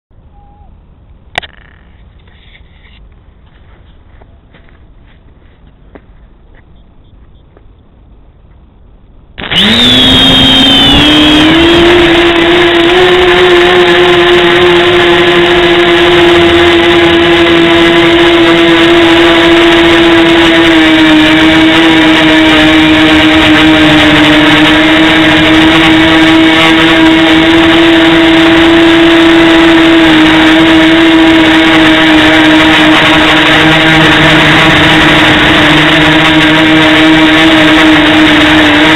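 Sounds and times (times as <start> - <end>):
drone motors buzzing whine: 9.2 - 38.9.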